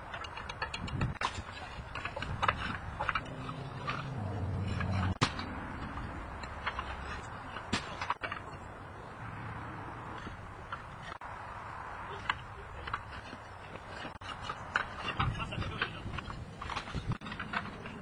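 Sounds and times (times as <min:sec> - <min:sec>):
low hum: 0:03.0 - 0:06.7.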